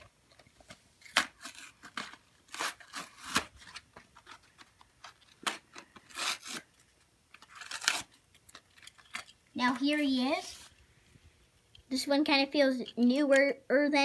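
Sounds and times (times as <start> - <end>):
cardboard packaging rubbing: 1.4 - 4.7, 5.6 - 6.7.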